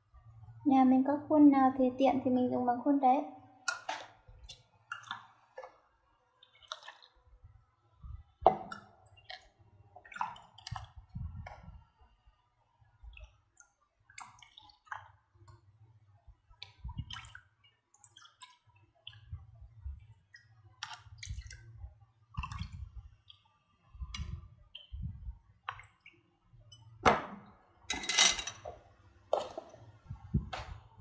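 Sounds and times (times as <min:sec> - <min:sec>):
liquid pouring into plastic cup: 0:20.8 - 0:23.4.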